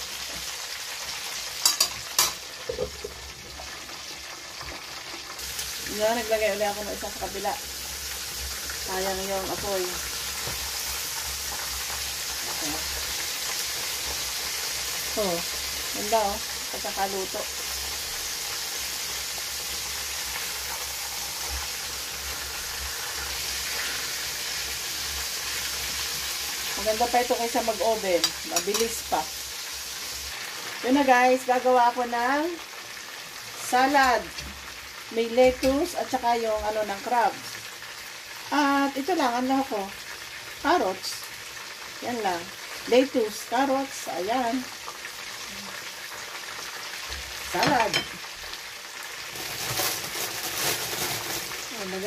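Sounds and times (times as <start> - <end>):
chicken sizzling in hot oil: 0.0 - 52.0
metal lid on pan: 1.6 - 3.2, 28.2 - 29.0, 47.6 - 48.3.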